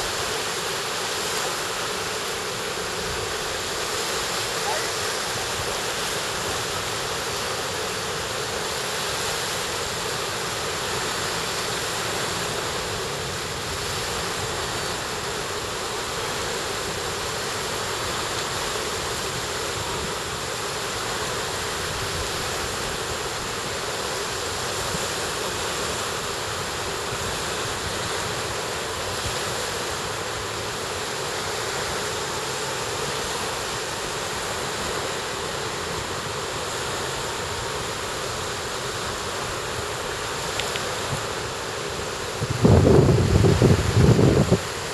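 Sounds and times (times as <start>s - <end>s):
surf breaking on beach: 24.4s - 44.9s
wind noise on microphone: 41.9s - 44.9s.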